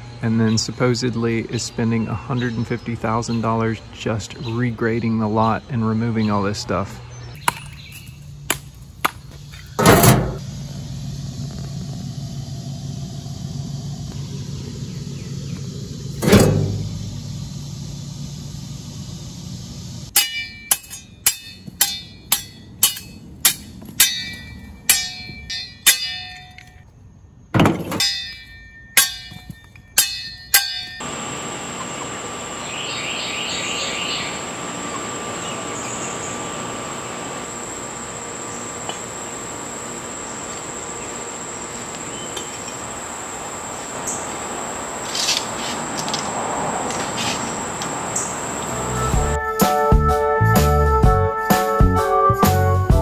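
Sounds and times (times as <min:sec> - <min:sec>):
high insect drone: 0:07.8 - 0:20.2, 0:31.0 - 0:49.4
hammer clinking on brick: 0:20.2 - 0:26.8, 0:27.9 - 0:31.0.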